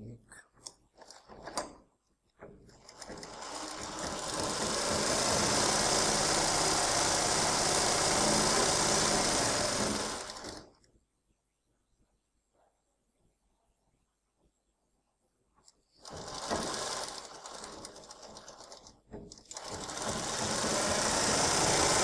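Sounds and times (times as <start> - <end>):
sewing machine stitching: 2.5 - 10.8, 16.0 - 22.0.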